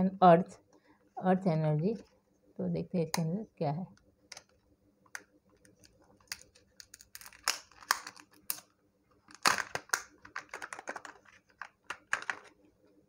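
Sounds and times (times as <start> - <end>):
plastic capsule clicking and crackling: 4.3 - 12.6.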